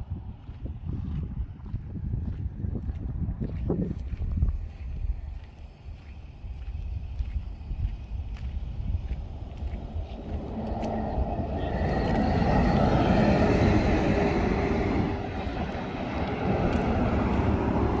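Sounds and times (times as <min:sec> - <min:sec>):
truck passing at speed: 0:08.7 - 0:18.0.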